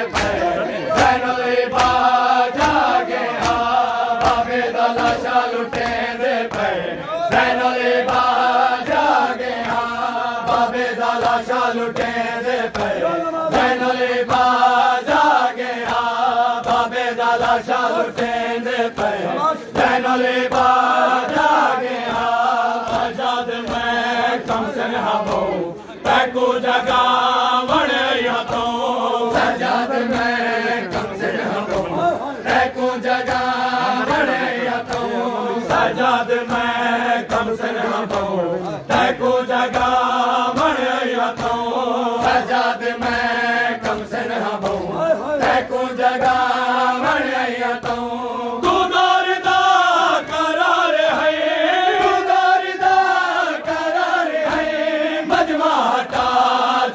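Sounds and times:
crowd beating their chests: 0:00.0 - 0:56.9
man chanting a lament: 0:11.8 - 0:15.4, 0:16.0 - 0:21.8, 0:23.0 - 0:39.6, 0:44.5 - 0:47.4.

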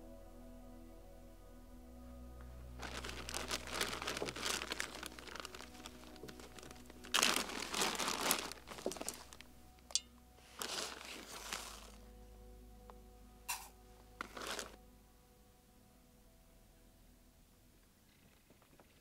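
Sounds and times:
crinkling and rustling material: 0:02.8 - 0:12.1, 0:13.5 - 0:14.8.

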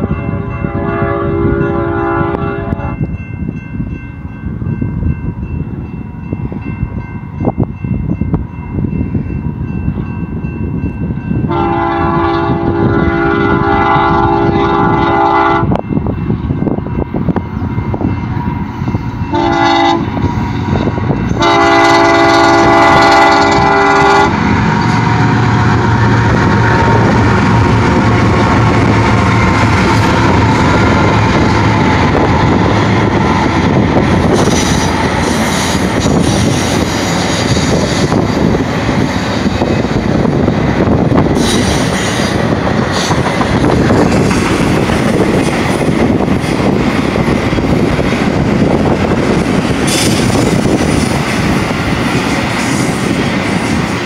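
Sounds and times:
train rumbling past: 0:00.0 - 0:54.0
locomotive air horn blasts: 0:00.2 - 0:03.0, 0:11.5 - 0:15.8, 0:19.3 - 0:20.3, 0:21.4 - 0:24.4.

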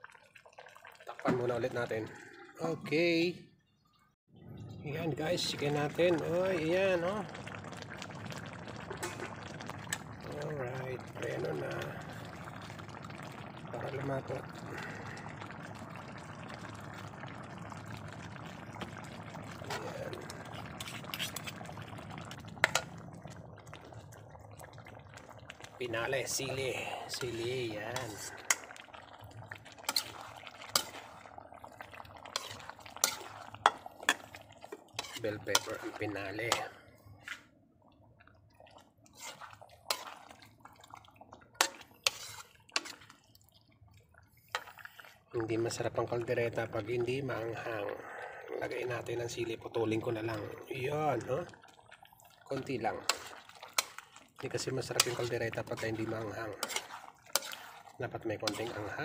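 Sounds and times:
sauce simmering in a pan: 0:00.0 - 0:03.2, 0:04.4 - 0:59.0
spatula stirring stew: 0:19.7 - 0:21.7, 0:22.3 - 0:23.0, 0:25.6 - 0:37.5, 0:39.1 - 0:43.3, 0:52.4 - 0:59.0
metal spoon scraping a pan: 0:20.8 - 0:21.5, 0:29.9 - 0:31.1, 0:32.4 - 0:35.9, 0:39.1 - 0:40.2, 0:41.6 - 0:43.1, 0:53.1 - 0:54.0, 0:54.8 - 0:57.8, 0:58.4 - 0:59.0.

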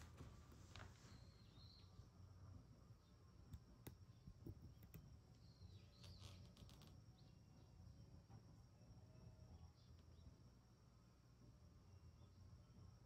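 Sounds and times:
soft bird chirps: 0:00.9 - 0:02.1, 0:03.0 - 0:07.7.

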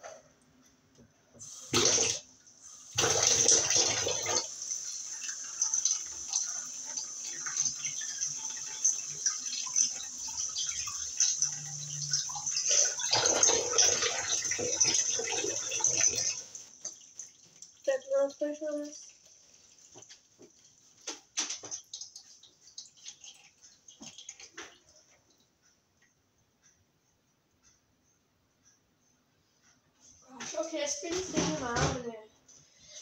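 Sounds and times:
tap water splashing into sink: 0:05.2 - 0:25.0.

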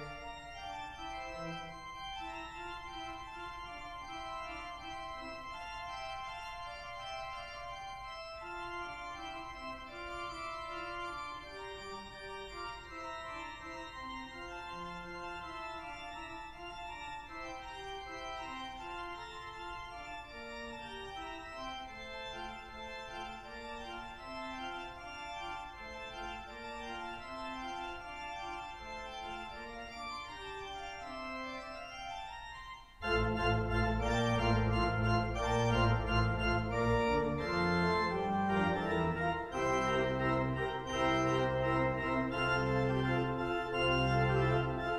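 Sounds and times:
pipe organ playing: 0:00.0 - 0:44.9.

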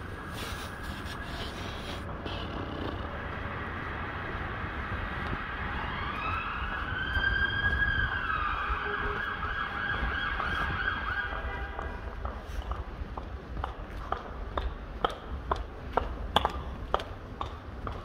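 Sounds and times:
city traffic rumble: 0:00.0 - 0:18.0
emergency siren wailing: 0:05.2 - 0:12.0.

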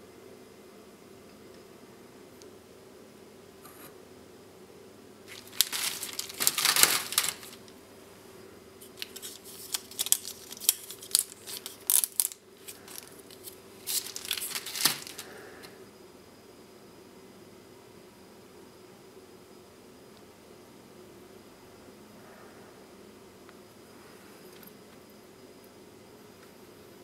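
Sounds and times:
plastic tape crinkling and crackling: 0:05.3 - 0:07.7, 0:08.8 - 0:15.3.

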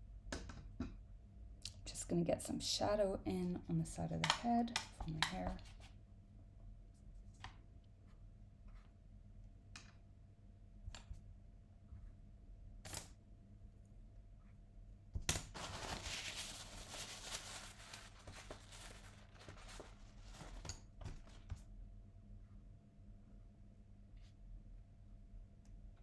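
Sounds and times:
paper towel crinkling: 0:15.5 - 0:21.5.

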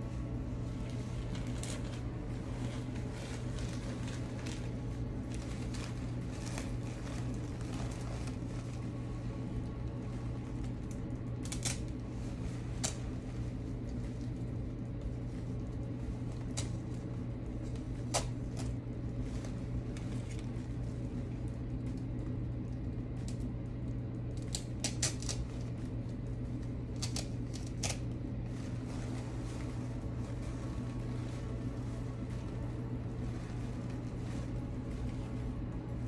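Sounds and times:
low hum: 0:00.0 - 0:36.0
flower stems clicking and snipping: 0:10.6 - 0:12.1, 0:12.8 - 0:13.1, 0:17.6 - 0:18.8, 0:24.3 - 0:28.2.

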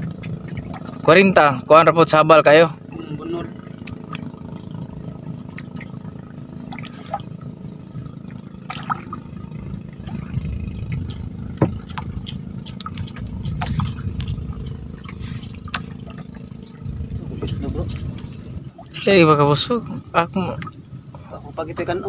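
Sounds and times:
small splashes and clicks: 0:00.0 - 0:01.1, 0:03.6 - 0:09.3, 0:10.0 - 0:16.8
water sloshing and dripping: 0:00.0 - 0:01.7, 0:02.9 - 0:21.9
steady low rumble: 0:00.0 - 0:22.0.

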